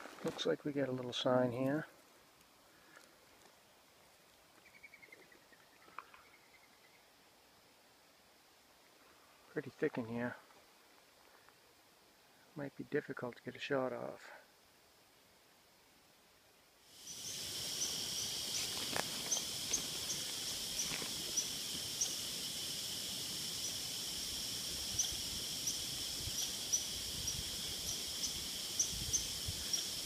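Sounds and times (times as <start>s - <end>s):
insect trilling: 16.8s - 30.0s.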